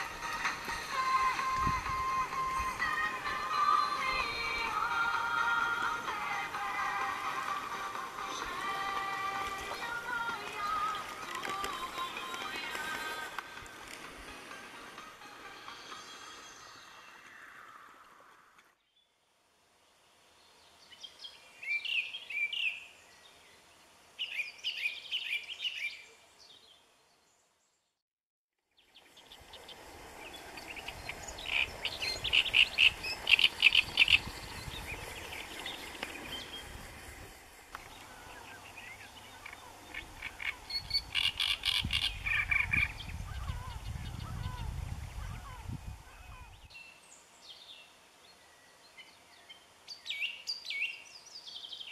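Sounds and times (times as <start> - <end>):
songbirds singing: 0.0 - 13.8, 20.0 - 27.9, 28.7 - 51.9
wind rumble on microphone: 0.9 - 3.4, 29.3 - 37.5, 40.1 - 46.7.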